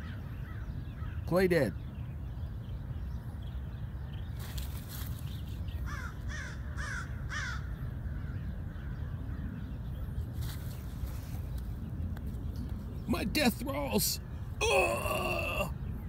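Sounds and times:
steady low rumble: 1.8s - 16.0s
crow cawing: 5.9s - 7.7s.

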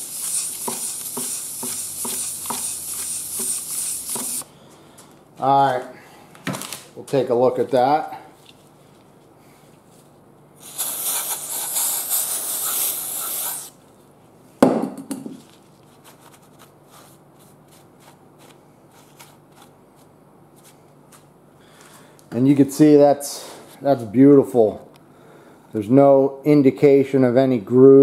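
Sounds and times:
aerosol spray hiss: 0.0s - 4.4s, 10.6s - 13.8s.

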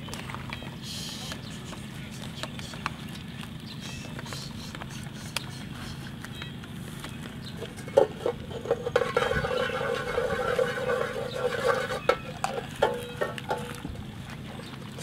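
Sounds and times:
paddle scraping steel pot: 7.6s - 13.9s.

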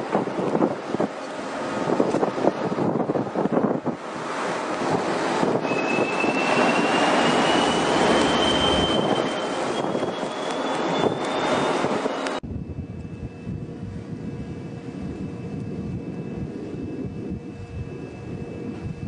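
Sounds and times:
wind rushing over microphone: 0.0s - 19.0s
faint thin whistle rising: 5.6s - 12.4s.

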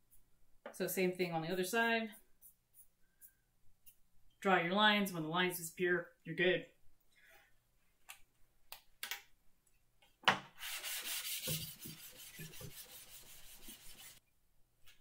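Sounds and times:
metal plane scraping on sandpaper: 10.6s - 14.2s.

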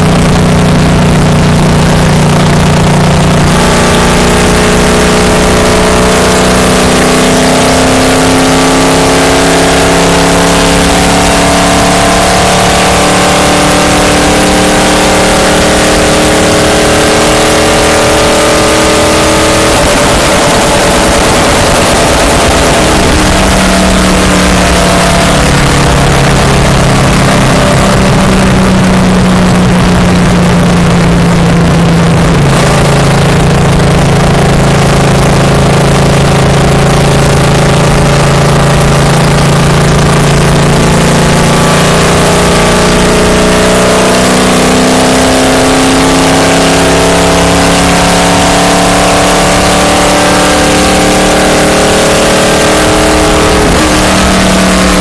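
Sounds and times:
race car engine running hard: 0.0s - 55.0s
wind and road noise: 0.0s - 55.0s.

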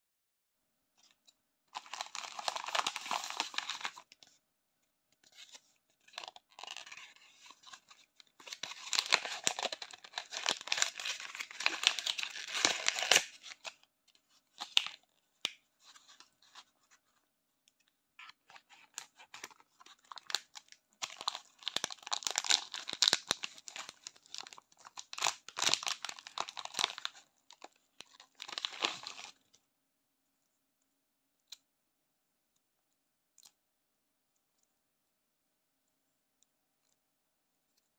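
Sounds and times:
plastic wrappers crinkling and tearing: 1.7s - 4.2s, 5.3s - 13.8s, 14.5s - 16.7s, 18.2s - 29.6s.

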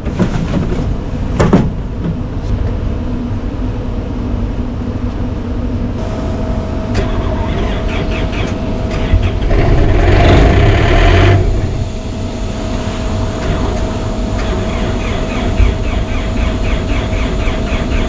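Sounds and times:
air compressor engine running: 6.0s - 18.0s.

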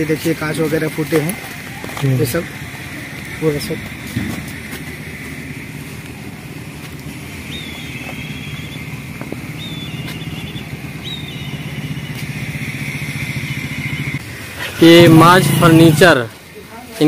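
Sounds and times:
small engine running: 0.0s - 16.4s.

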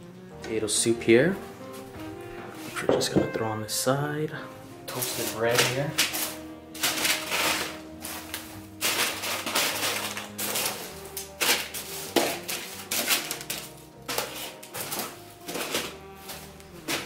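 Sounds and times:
background music with clicking beat: 4.8s - 17.0s.

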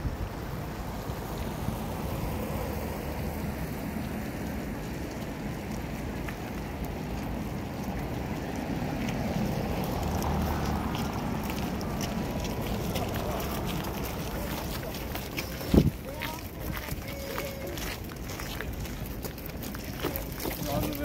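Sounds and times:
traffic hum: 0.0s - 21.0s
wind rumbling on microphone: 0.0s - 21.0s
car passing close by: 0.2s - 6.2s, 6.8s - 14.9s.

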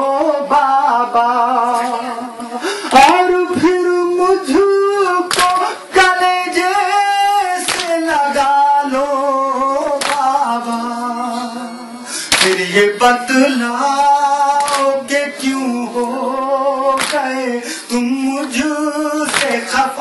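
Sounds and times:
man chanting through a microphone: 0.0s - 20.0s
chest beating slaps: 5.3s - 5.6s, 12.3s - 12.6s.

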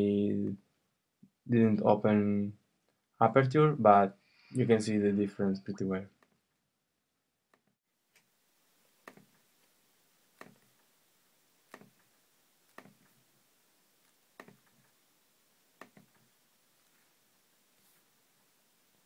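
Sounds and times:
trackpad clicks: 9.0s - 9.3s, 14.4s - 14.8s.

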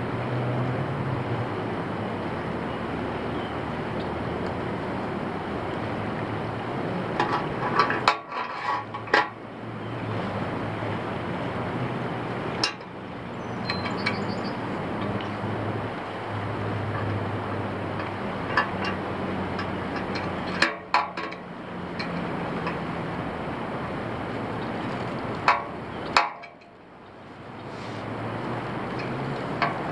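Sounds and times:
steady background noise: 0.0s - 29.9s
metal hardware clinking on a pole: 13.6s - 15.3s, 18.0s - 22.8s, 25.5s - 26.9s, 28.9s - 29.9s.

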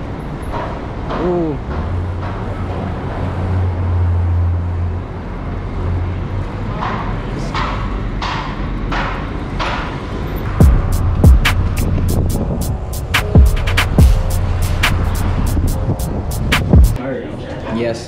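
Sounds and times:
low rumble of street traffic: 0.0s - 18.0s
wind noise on microphone: 10.5s - 17.0s.

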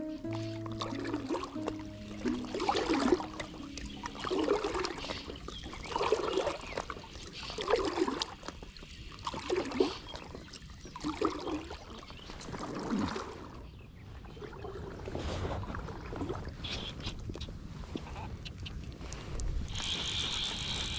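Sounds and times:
water splashing and trickling: 0.0s - 16.7s.

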